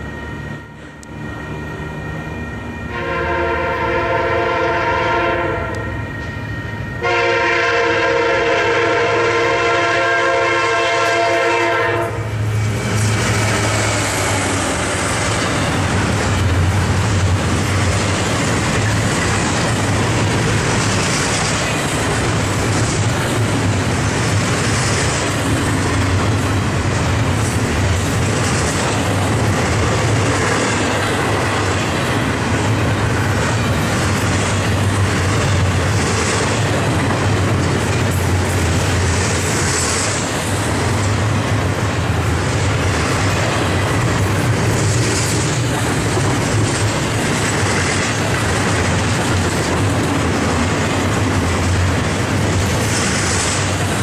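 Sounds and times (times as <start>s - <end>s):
locomotive engine drone: 0.0s - 54.0s
locomotive air horn blasts: 2.9s - 6.0s, 7.0s - 12.4s
freight cars rumbling and clacking: 12.0s - 54.0s.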